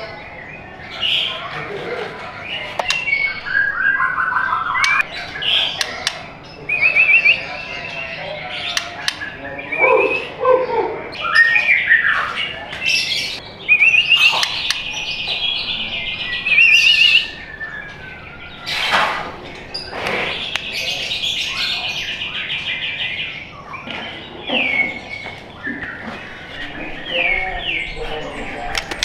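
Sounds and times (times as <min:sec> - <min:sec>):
bird singing trills: 0:00.0 - 0:29.0
bird sharp clicks: 0:02.8 - 0:03.4, 0:04.7 - 0:06.3, 0:08.7 - 0:09.4, 0:14.1 - 0:15.4
bird whistled phrases: 0:02.9 - 0:07.9, 0:08.6 - 0:12.4, 0:13.0 - 0:19.1.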